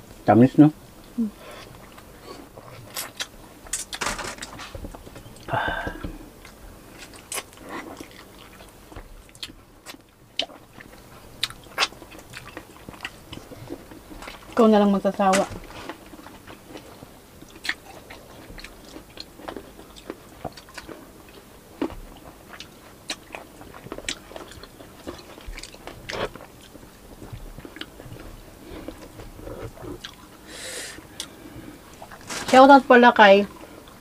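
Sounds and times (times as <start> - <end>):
chewing and biting fruit: 6.4 - 14.6, 15.6 - 30.4.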